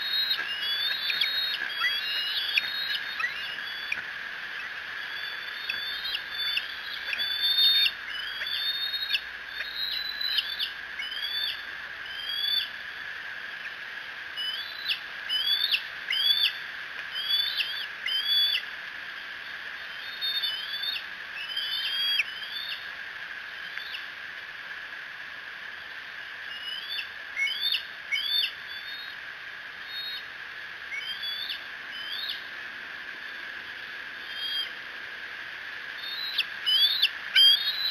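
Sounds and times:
young eagles begging calls: 0.0s - 11.6s, 36.0s - 37.9s
steady high hum: 0.0s - 18.1s, 27.0s - 37.9s.

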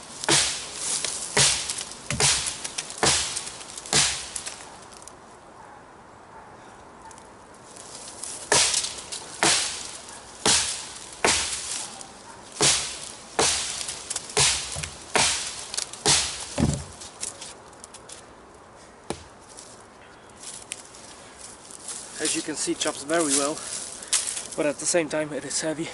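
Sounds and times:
knife chopping into log: 0.2s - 0.7s, 1.4s - 4.5s, 8.5s - 11.8s, 12.6s - 17.0s.

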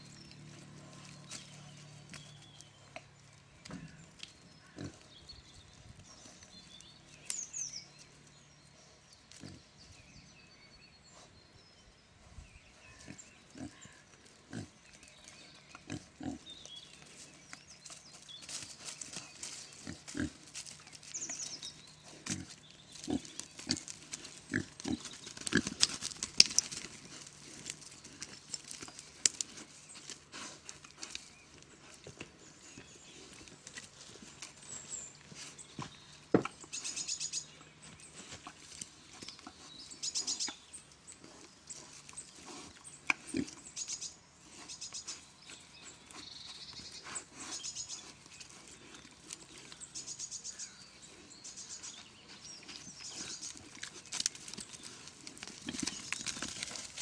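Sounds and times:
pigs grunting: 3.7s - 5.1s, 13.0s - 14.8s, 15.8s - 16.5s, 22.0s - 26.0s.

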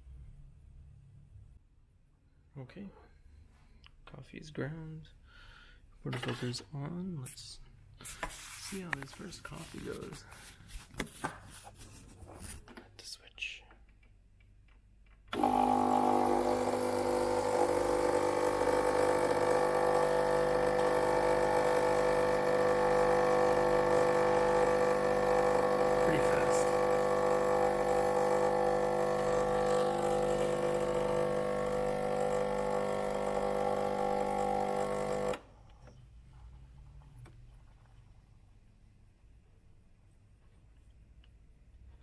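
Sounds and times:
espresso machine pump buzzing: 15.3s - 35.5s.

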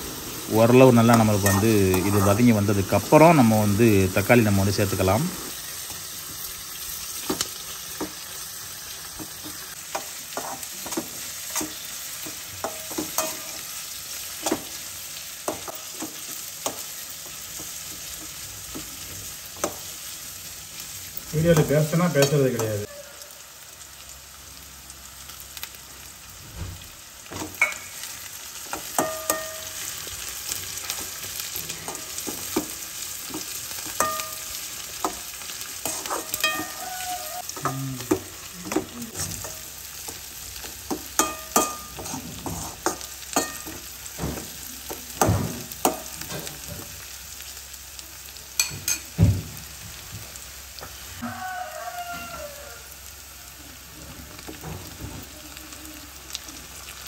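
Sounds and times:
shallots sizzling in hot oil: 0.0s - 57.0s
metal spatula scraping and knocking pan: 31.8s - 35.2s, 40.9s - 44.5s.

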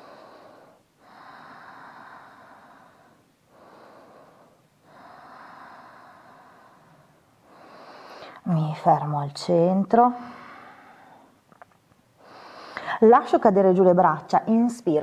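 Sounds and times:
woman breathing slowly: 0.0s - 8.6s, 10.0s - 13.1s.

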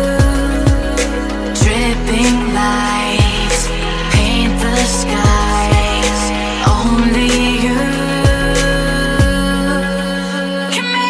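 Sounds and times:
pop music chords: 0.0s - 11.0s
deep drum hit: 0.2s - 2.6s, 3.2s - 7.6s, 8.2s - 8.6s, 9.2s - 9.5s.

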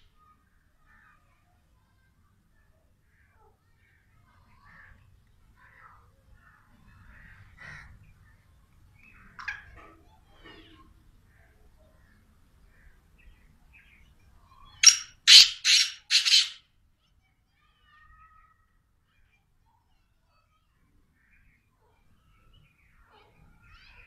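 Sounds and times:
francolin calling harsh notes: 14.8s - 16.6s.

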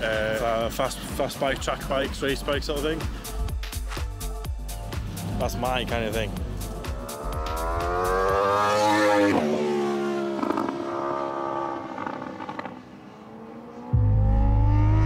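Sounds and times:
loud low rumble: 4.9s - 8.2s, 13.9s - 15.0s
racing motorcycle engine passing: 5.0s - 15.0s.

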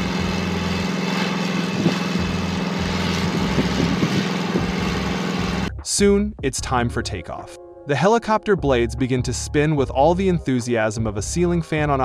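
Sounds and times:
small engine idling: 0.0s - 5.7s.

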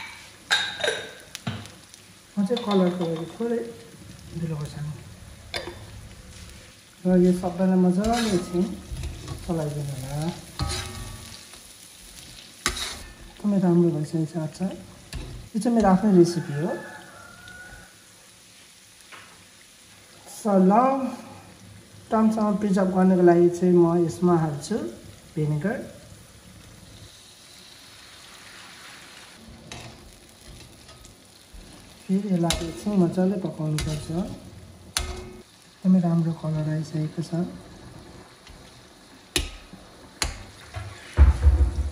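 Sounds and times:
oil and spices sizzling: 0.0s - 41.9s
spatula scraping a metal pan: 8.0s - 9.5s, 10.5s - 11.5s, 12.2s - 13.4s, 33.8s - 34.4s
spatula scraping pan: 8.0s - 9.6s, 10.4s - 13.4s, 29.4s - 33.0s, 33.7s - 35.4s
spatula clanking against pan: 10.6s - 11.3s, 35.0s - 35.4s.

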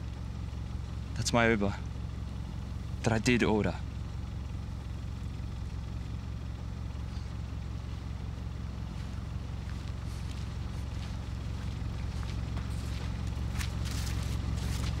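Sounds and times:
car engine idling: 0.0s - 15.0s
faint light footsteps: 8.8s - 15.0s.

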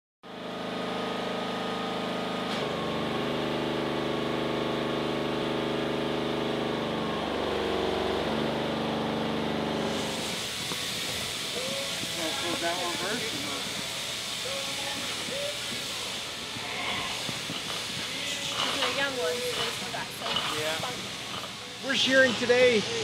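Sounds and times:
engine running: 0.2s - 23.0s
steady hiss: 10.0s - 23.0s.

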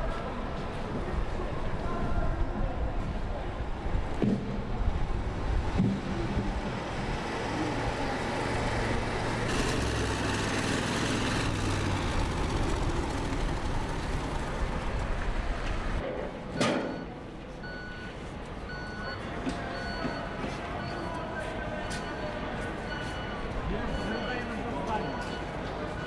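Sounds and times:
armoured vehicle engine rumble: 0.0s - 16.0s
street noise: 0.0s - 26.0s.

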